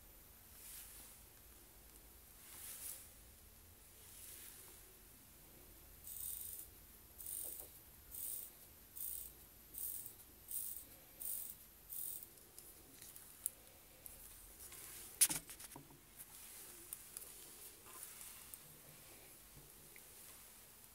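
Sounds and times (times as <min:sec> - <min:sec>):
watch winding ratchet rasp: 0:06.1 - 0:12.3.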